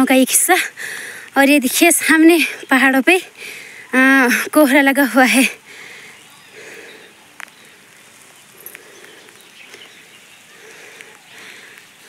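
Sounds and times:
soft ticks: 7.4s - 7.6s, 10.9s - 11.9s.

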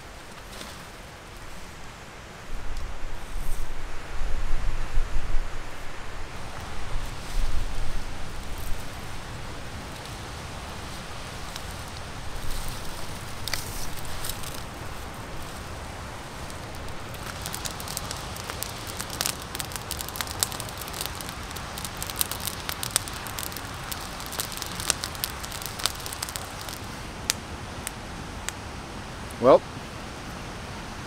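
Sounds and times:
campfire crackling and popping: 5.6s - 30.4s.

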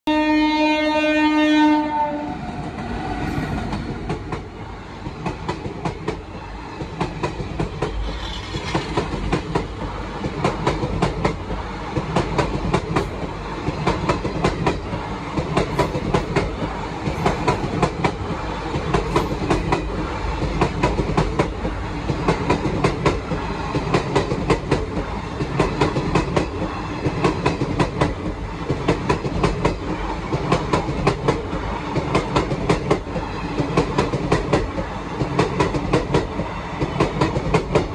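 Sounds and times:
train horn blast: 0.1s - 2.5s
train wheels rumbling on rails: 1.8s - 37.9s
wheels clickety-clack over rail joints: 2.6s - 37.9s.

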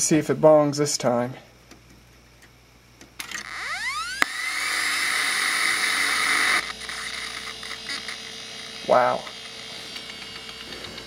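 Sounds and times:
quiet hum with steady tone: 0.0s - 11.0s
hard drive spinning up whine: 3.2s - 11.0s.

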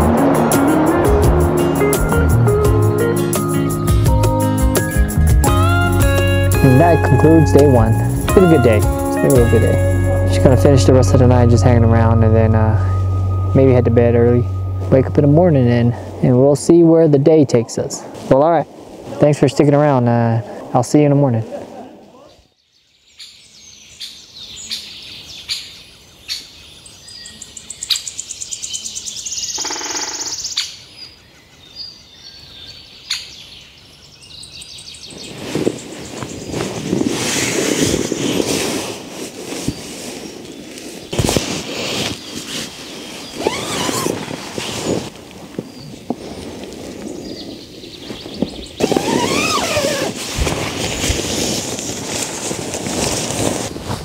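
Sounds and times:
rushing wind noise: 0.0s - 3.0s, 35.0s - 54.0s
birds chirping and calling: 22.3s - 36.8s
animal call rising and falling: 48.8s - 50.2s.

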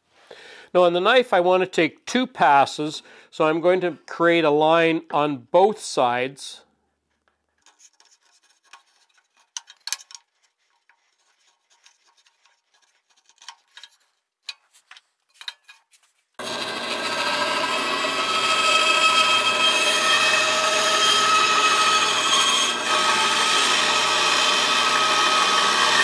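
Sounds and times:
marking gauge scratching wood: 7.6s - 14.1s
bandsaw humming: 16.4s - 26.0s.

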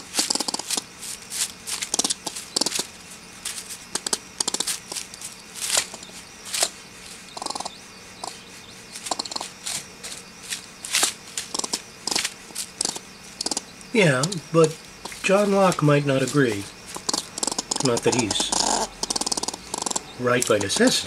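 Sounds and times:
squirrel chattering angrily: 0.0s - 0.9s, 1.7s - 3.0s, 3.9s - 5.0s, 5.8s - 9.6s, 11.4s - 21.0s.

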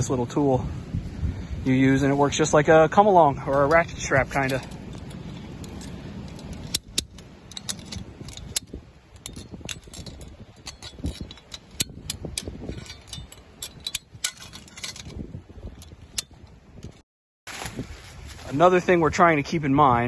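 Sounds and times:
ratchet wire tensioner clicking: 3.6s - 16.5s.

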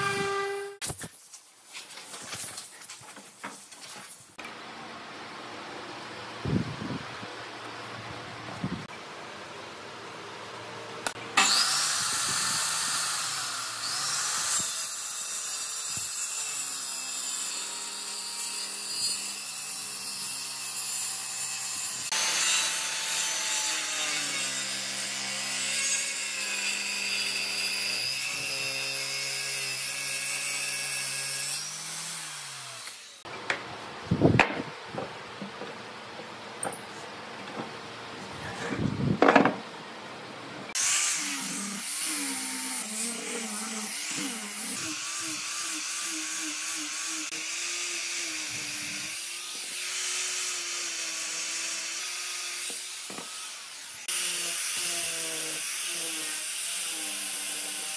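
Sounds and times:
circular saw cutting wood: 0.0s - 0.8s, 11.0s - 33.3s, 40.7s - 57.9s.

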